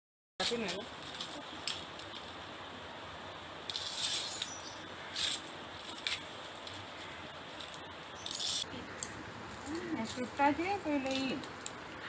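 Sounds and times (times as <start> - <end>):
knife scraping dry leaf: 3.7 - 8.7.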